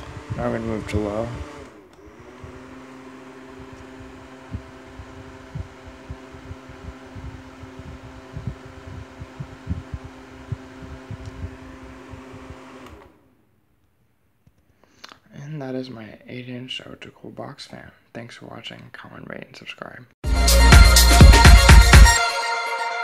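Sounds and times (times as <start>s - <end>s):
box fan motor hum: 0.0s - 13.4s
low thumps: 3.9s - 12.6s.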